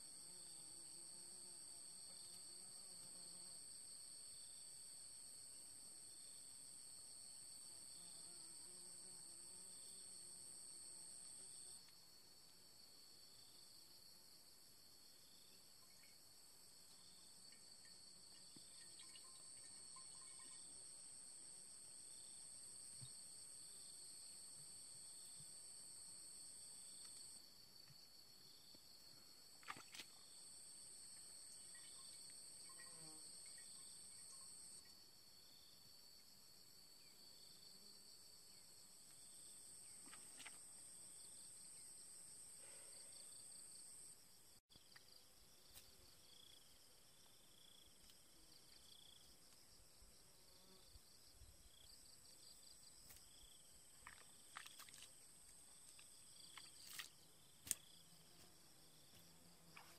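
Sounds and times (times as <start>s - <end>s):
insect chirp: 0.0s - 59.9s.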